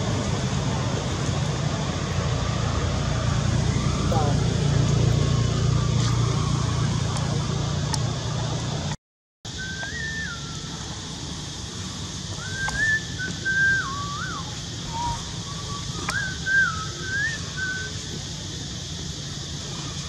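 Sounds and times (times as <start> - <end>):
outdoor background hiss: 0.0 - 20.0
person whistling: 9.5 - 10.9, 12.4 - 18.0.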